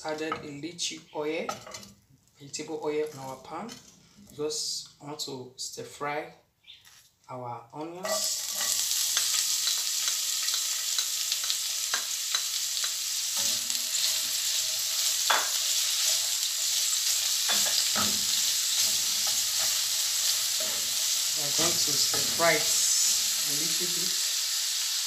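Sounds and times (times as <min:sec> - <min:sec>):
onions sizzling in oil: 0:08.0 - 0:25.0.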